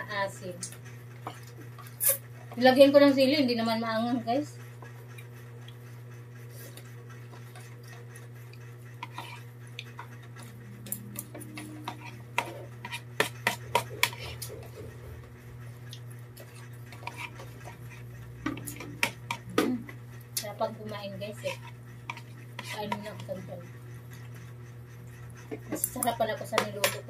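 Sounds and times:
steady low hum: 0.0 - 27.0
spoons scraping plastic plates: 8.9 - 15.2, 16.4 - 19.6, 20.8 - 23.6, 25.4 - 27.0.

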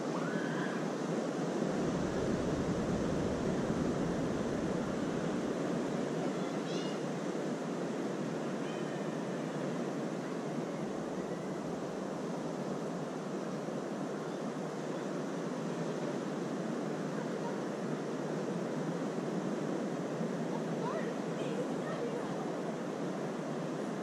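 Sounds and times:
wind rumbling on microphone: 0.0 - 8.6
ocean surf on beach: 0.0 - 24.0
faint short high calls: 8.6 - 9.4.

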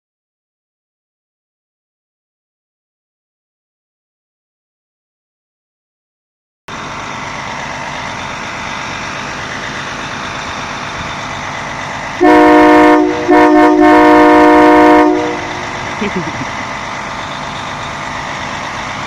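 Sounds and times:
fire engine running: 6.7 - 19.0
air horn blasts: 12.2 - 15.6.

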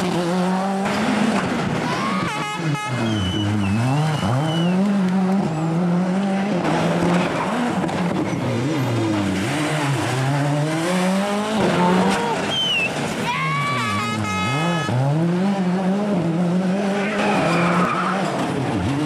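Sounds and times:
rally car engine revving: 0.0 - 19.0
tyre squeal: 2.9 - 4.9, 11.8 - 13.0.

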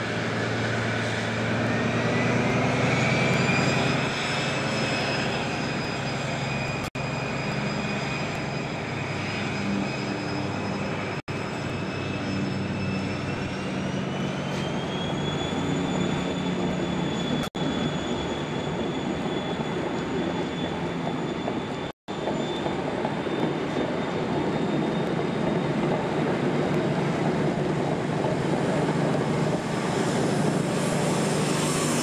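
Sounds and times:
diesel engine drone: 0.0 - 18.6, 26.4 - 32.0
turbocharger whine: 0.0 - 19.5, 27.8 - 32.0.

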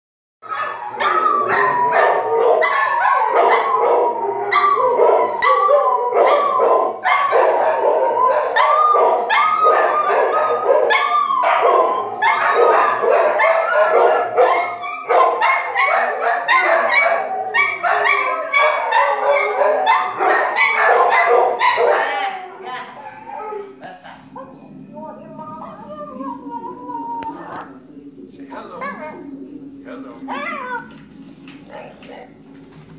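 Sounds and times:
dogs yipping and barking: 0.4 - 23.7, 30.2 - 32.2
dogs howling: 0.4 - 32.4.

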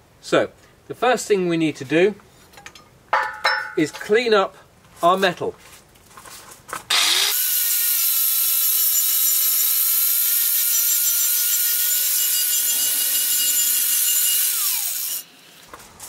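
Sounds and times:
angle grinder grinding steel: 6.9 - 15.7.

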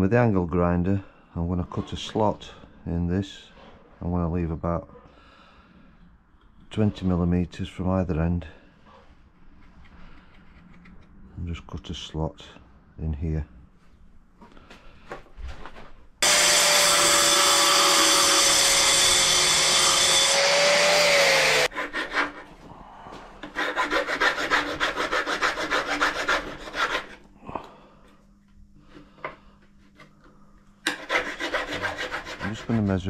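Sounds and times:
angle grinder cutting aluminium: 16.2 - 21.7
hand file rasping metal: 16.2 - 22.5, 23.4 - 27.2, 30.9 - 33.0.

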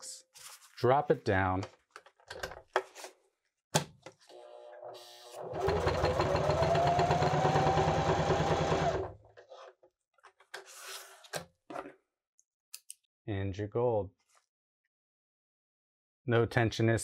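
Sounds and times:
sewing machine stitching: 5.4 - 9.2.

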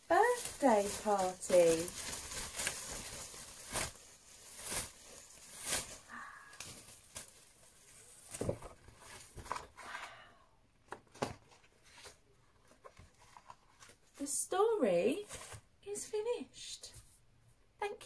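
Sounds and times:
ribbon streamers rustling: 0.0 - 9.4
handling sounds: 0.0 - 9.8.

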